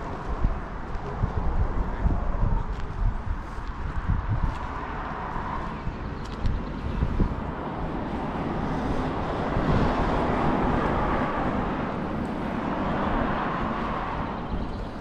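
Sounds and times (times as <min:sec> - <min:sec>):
vehicle passing: 0:03.4 - 0:15.0.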